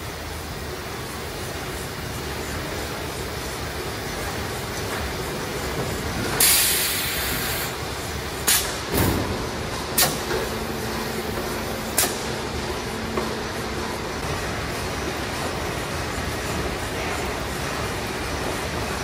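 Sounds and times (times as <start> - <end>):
steady machine noise: 0.0 - 19.0
loud air hiss: 6.2 - 9.0.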